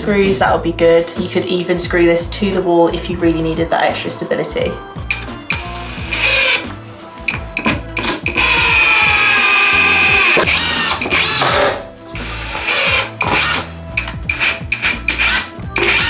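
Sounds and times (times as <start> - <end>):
impact driver driving screws: 5.1 - 6.6, 7.3 - 16.0.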